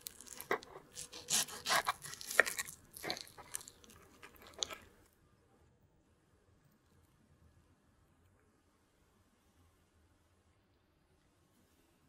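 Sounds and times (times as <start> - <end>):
knife sawing through cake: 0.0 - 4.7.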